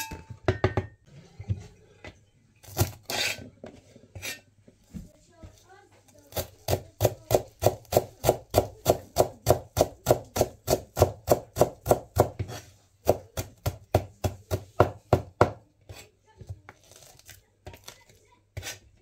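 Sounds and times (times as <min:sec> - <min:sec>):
knife chopping on cutting board: 0:06.3 - 0:16.8, 0:18.6 - 0:18.9.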